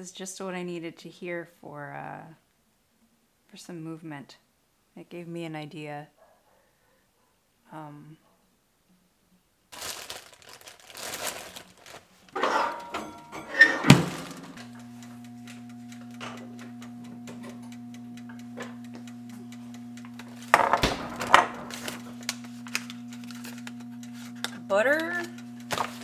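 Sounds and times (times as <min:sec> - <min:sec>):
foil wrapper crinkling: 0:09.7 - 0:12.4, 0:14.0 - 0:14.7, 0:20.2 - 0:24.6, 0:25.6 - 0:26.0
plastic bag rustling: 0:09.7 - 0:12.4, 0:13.9 - 0:14.6
low electric hum: 0:09.8 - 0:26.0.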